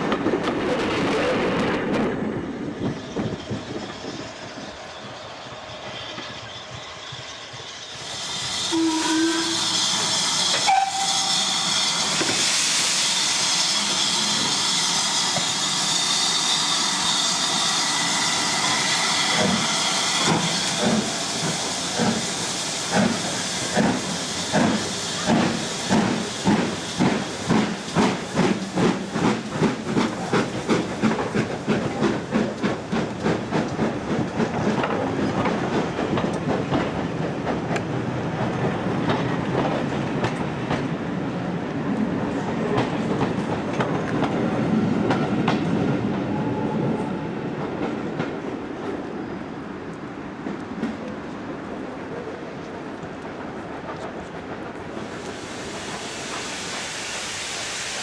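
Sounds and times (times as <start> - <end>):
steam locomotive exhaust beats: 2.7 - 48.5, 53.3 - 58.0
steam hissing: 2.9 - 37.2, 54.8 - 58.0.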